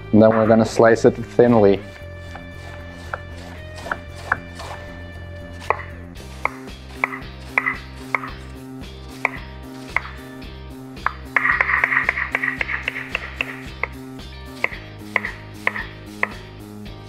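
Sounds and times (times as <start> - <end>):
knife slicing cabbage on wooden board: 1.8 - 4.9, 5.6 - 8.4, 9.2 - 10.2, 11.8 - 16.4.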